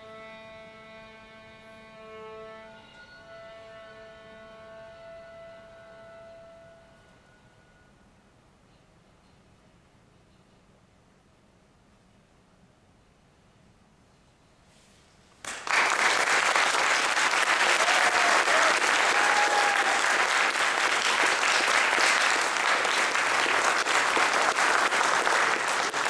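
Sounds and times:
audience applause: 15.4 - 26.0.

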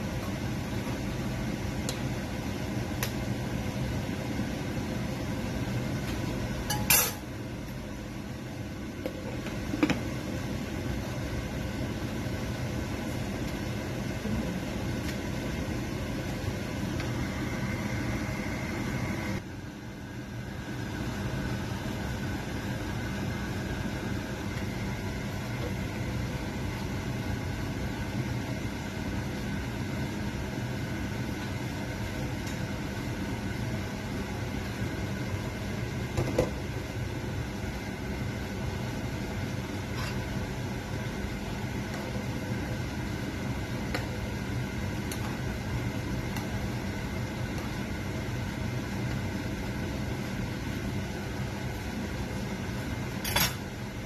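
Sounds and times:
kitchen hum: 0.0 - 54.0.

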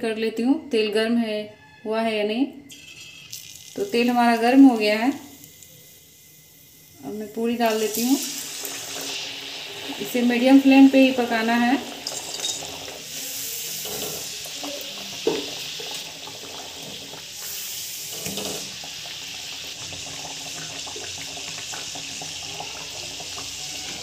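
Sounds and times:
food deep-frying in oil: 2.7 - 24.0.

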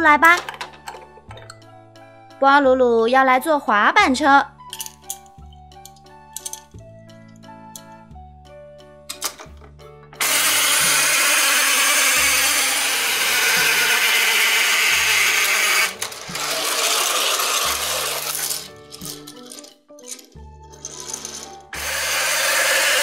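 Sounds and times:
light children's music: 0.0 - 23.0
plastic toy track rattling: 0.3 - 1.1, 10.2 - 23.0
toy motor whirring: 10.2 - 23.0.

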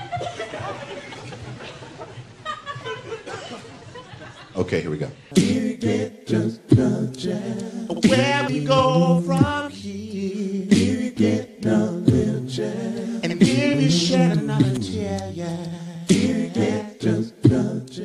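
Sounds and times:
beatboxed percussion hits: 5.3 - 9.7, 10.7 - 18.0
man singing a cappella: 5.3 - 18.0.

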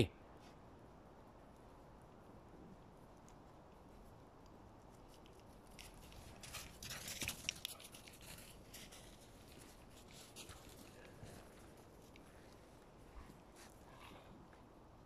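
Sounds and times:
footsteps crunching on snow: 5.6 - 14.0.

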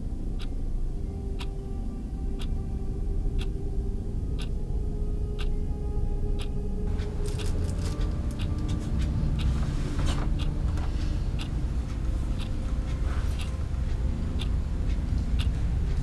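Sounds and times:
low rumble: 0.0 - 16.0.

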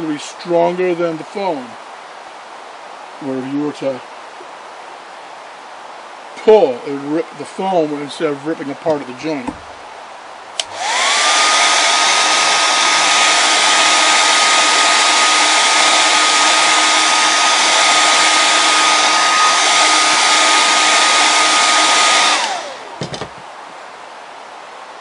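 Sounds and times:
hair dryer blowing: 10.6 - 23.4
motor whine: 10.6 - 23.4.

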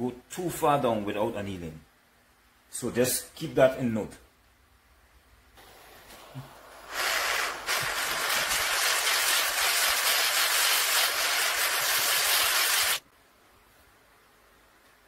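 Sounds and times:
gas torch flame hissing: 5.6 - 13.0.

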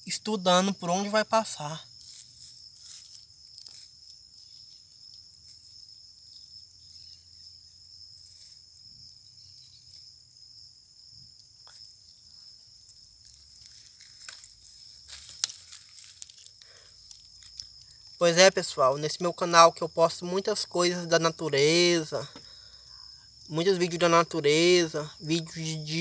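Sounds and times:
insects trilling: 0.0 - 26.0
rustles: 1.8 - 10.4, 11.2 - 18.2.

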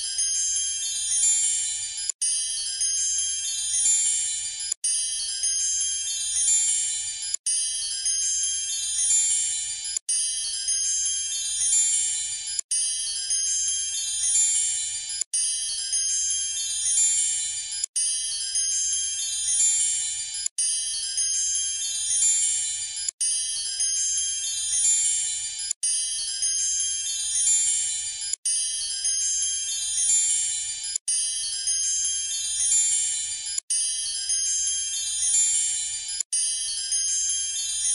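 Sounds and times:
tinkling chime music: 0.0 - 37.9
twinkling chime music: 36.6 - 37.9.

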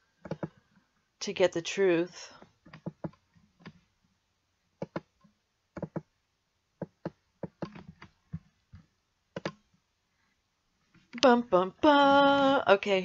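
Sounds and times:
computer keyboard clicking: 9.4 - 9.6.

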